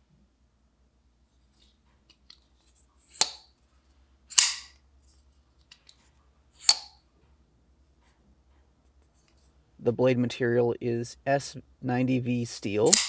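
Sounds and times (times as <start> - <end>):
folding knife snapping: 3.1 - 3.5, 4.3 - 4.8, 6.6 - 7.0.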